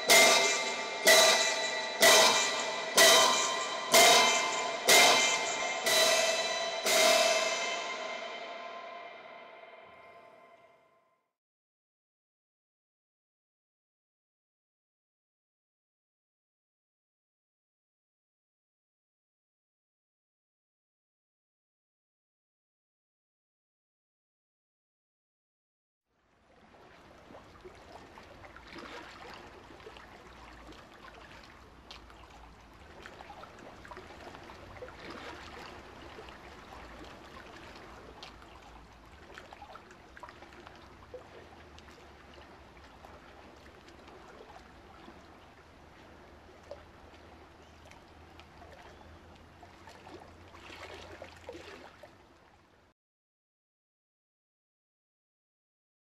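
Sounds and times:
small splashes: 26.3 - 52.6
lake water lapping: 26.3 - 52.8.

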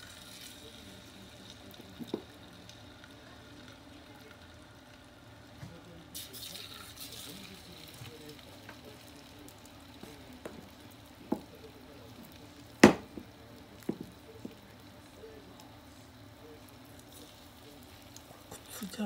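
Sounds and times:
chicken frying in oil: 0.0 - 19.0.

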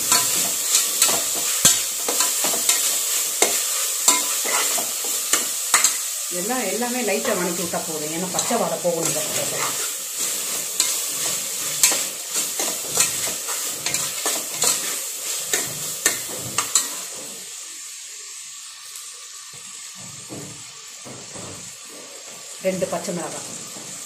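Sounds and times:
food sizzling in oil: 0.0 - 24.0
metal spoon scraping a pot: 0.1 - 6.0.

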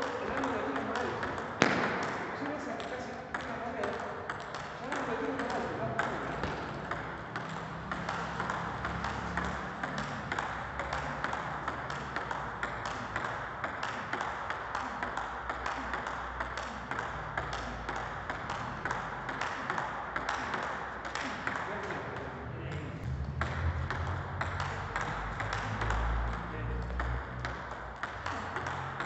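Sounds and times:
table tennis ball clicking off rackets: 0.0 - 22.3, 23.0 - 29.0
ball bouncing on table: 0.0 - 29.0.

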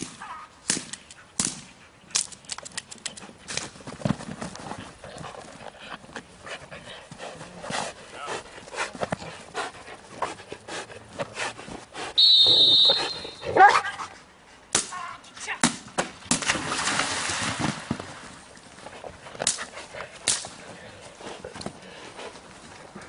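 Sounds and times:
scuffling and knocks: 3.3 - 6.4
shrill whistle blast: 12.2 - 13.4.

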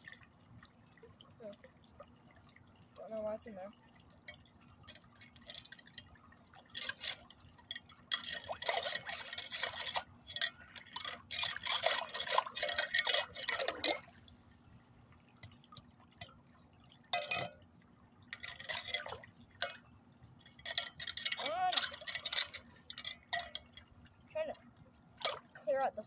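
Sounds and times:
water splashing from rake: 0.0 - 26.0.

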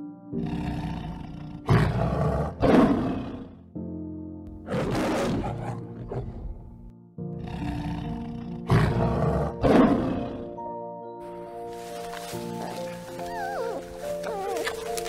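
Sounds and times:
background music: 0.0 - 15.0
lion roaring: 0.4 - 3.6, 4.6 - 6.7, 7.4 - 10.4.

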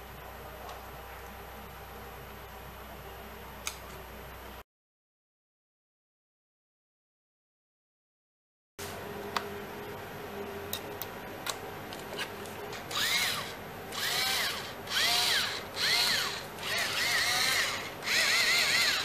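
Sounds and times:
cordless screwdriver motor whine: 12.9 - 19.0.

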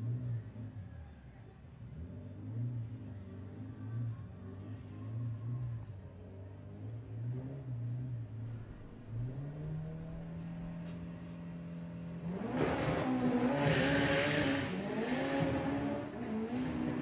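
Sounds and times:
car engine revving: 6.4 - 17.0.

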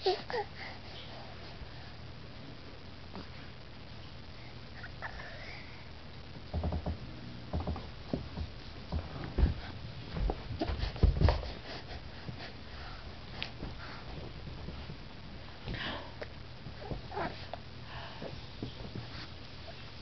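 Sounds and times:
low thumps: 6.4 - 11.6.

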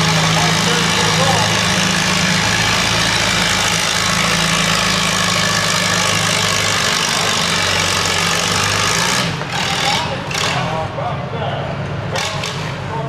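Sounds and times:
tractor engine running under load: 0.0 - 13.0.

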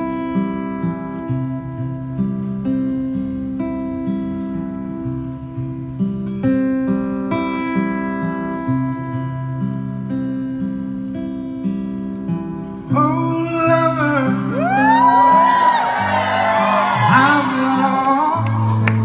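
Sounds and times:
acoustic guitar strumming: 0.0 - 19.0
audience applause and whoops: 14.5 - 19.0.

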